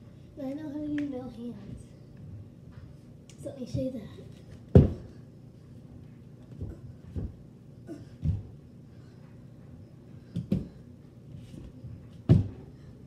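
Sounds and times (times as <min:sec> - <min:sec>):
dull thumps against walls: 0:04.7 - 0:05.2, 0:12.2 - 0:12.6.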